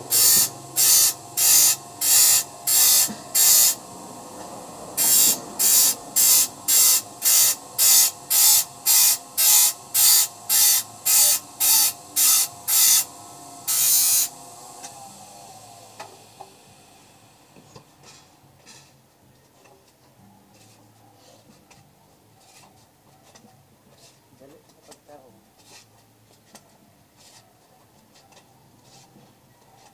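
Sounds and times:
grinder grinding saw teeth: 0:00.0 - 0:16.8
electric motor hum: 0:00.0 - 0:17.7.

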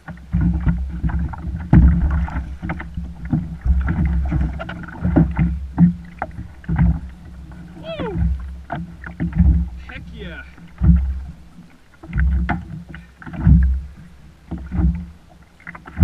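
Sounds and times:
knocks against kayak hull: 0:00.4 - 0:07.1.

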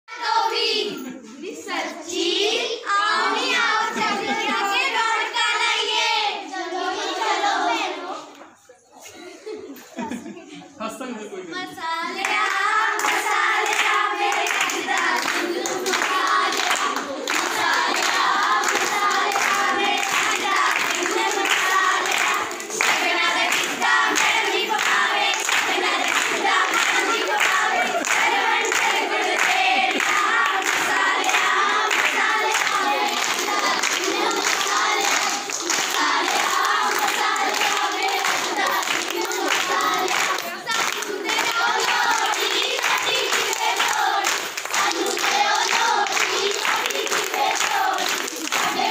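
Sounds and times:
girls singing folk song: 0:00.1 - 0:08.5, 0:11.8 - 0:48.9
rhythmic hand-clapping: 0:12.0 - 0:48.9.

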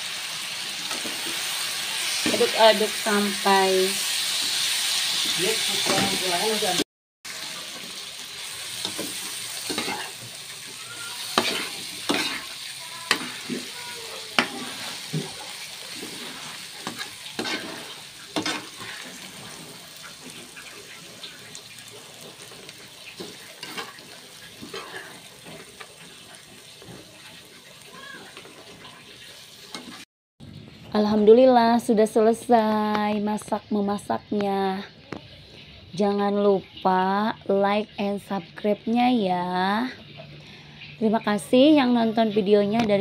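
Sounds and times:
food sizzling in a pan: 0:00.0 - 0:30.1
spatula scraping pan: 0:08.6 - 0:27.6.

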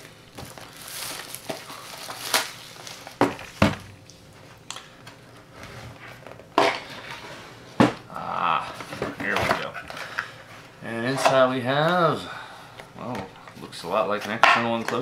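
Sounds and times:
plastic shrink wrap crinkling: 0:00.0 - 0:04.2.

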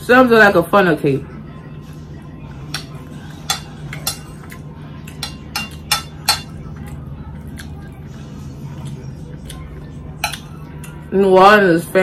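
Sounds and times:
steady low hum: 0:00.0 - 0:12.0
fork clinking on ceramic plate: 0:05.1 - 0:06.6.

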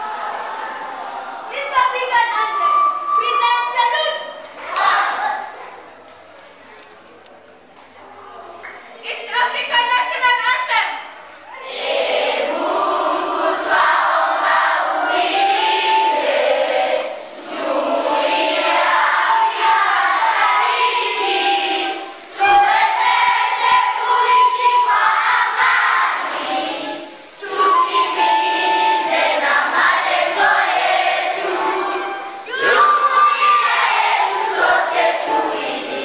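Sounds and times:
children singing together: 0:11.6 - 0:36.0.

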